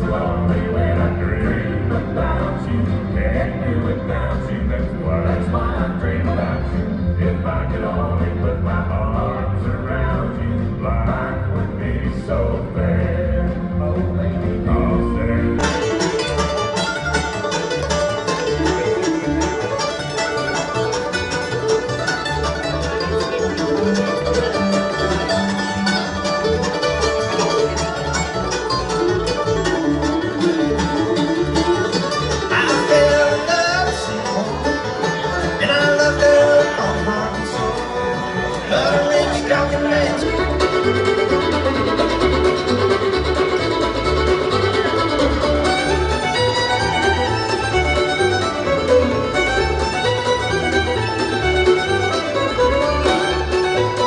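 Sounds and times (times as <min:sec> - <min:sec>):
bluegrass band playing: 0:00.0 - 0:54.0
live band music: 0:00.0 - 0:54.0
person singing: 0:32.4 - 0:34.8, 0:35.4 - 0:40.8.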